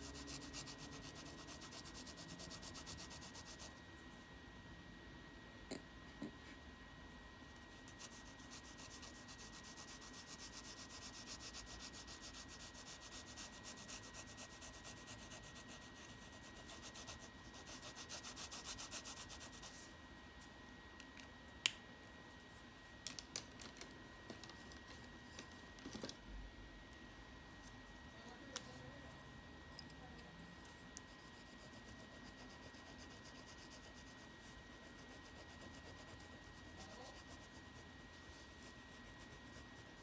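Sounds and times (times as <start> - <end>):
pencil scratching on paper: 0.0 - 3.8, 7.5 - 19.9, 30.6 - 40.0.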